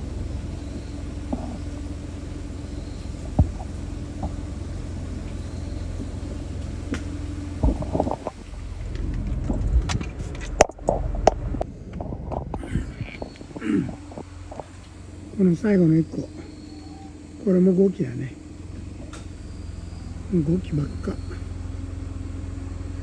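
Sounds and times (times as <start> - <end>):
faint hum: 0.0 - 23.0
low rumble: 0.0 - 23.0
rustles and knocks: 3.2 - 4.5, 5.2 - 15.0.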